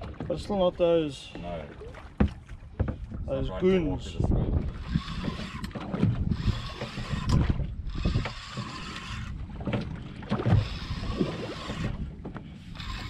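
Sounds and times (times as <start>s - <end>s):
wind buffeting microphone: 0.0s - 13.0s
low knocks on boat: 1.3s - 3.4s.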